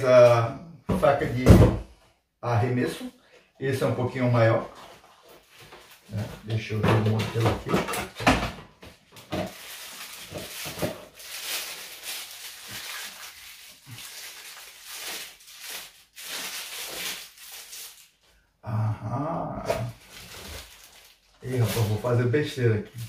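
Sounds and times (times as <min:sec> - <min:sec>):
plastic packaging rustling: 0:04.4 - 0:07.2, 0:09.0 - 0:18.3, 0:19.7 - 0:23.0.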